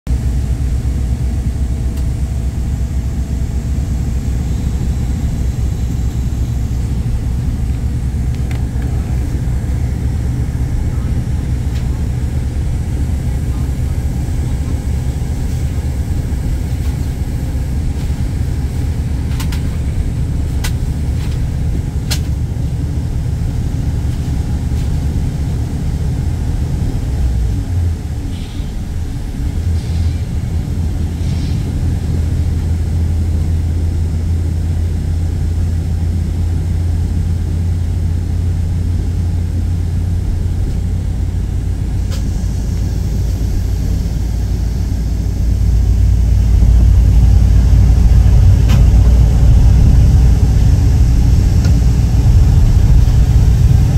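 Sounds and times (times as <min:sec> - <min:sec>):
vehicle engine and road rumble: 0:00.1 - 0:53.9.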